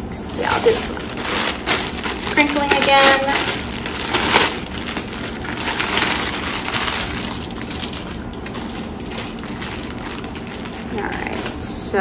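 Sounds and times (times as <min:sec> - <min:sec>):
plastic packaging crinkling: 0:00.2 - 0:11.6.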